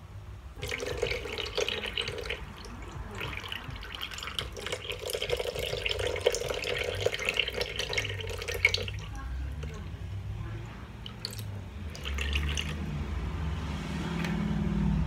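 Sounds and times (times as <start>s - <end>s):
juice pouring into metal bowl: 0.6s - 9.9s, 11.0s - 12.9s.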